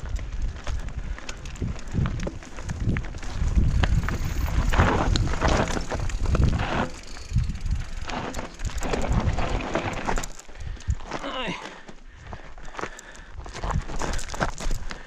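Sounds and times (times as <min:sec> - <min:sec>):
wind on microphone: 0:00.0 - 0:11.1
bike knocking and rattling: 0:00.0 - 0:11.2, 0:12.7 - 0:15.0
tyres crunching over gravel: 0:00.0 - 0:15.0.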